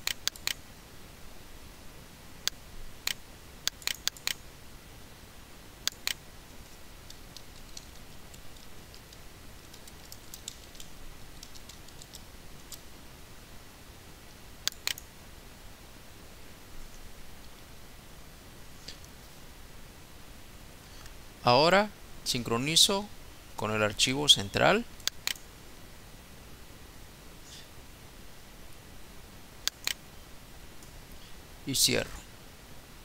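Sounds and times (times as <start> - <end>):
computer mouse clicking: 0.0 - 0.6, 2.4 - 4.4, 5.8 - 6.2, 7.0 - 12.8, 14.6 - 15.1, 25.0 - 25.4, 29.6 - 30.0
keyboard typing: 0.0 - 0.6, 3.0 - 4.4, 5.9 - 12.8, 14.6 - 15.1
low steady hiss: 0.0 - 33.0.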